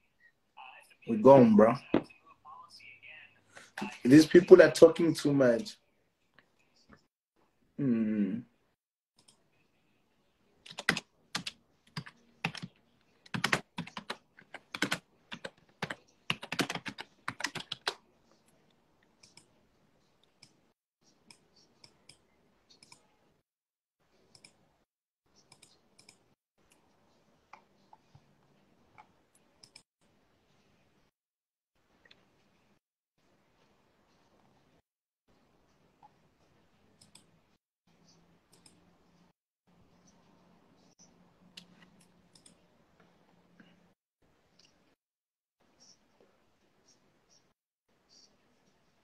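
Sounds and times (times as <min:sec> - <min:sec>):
computer keyboard keys clicking: 0:10.7 - 0:18.0.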